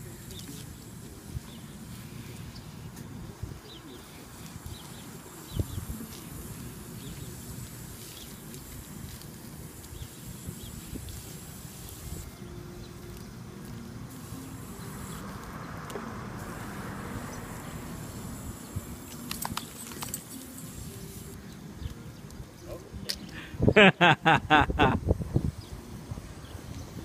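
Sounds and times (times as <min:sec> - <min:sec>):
garden hose spraying water: 0:00.0 - 0:22.4.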